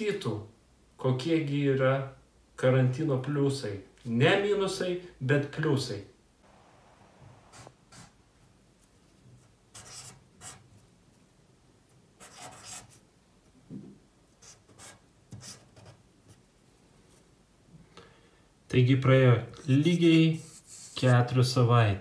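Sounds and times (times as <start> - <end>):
marker strokes on paper: 7.4 - 8.2, 9.4 - 10.7, 12.2 - 13.0, 19.8 - 21.3.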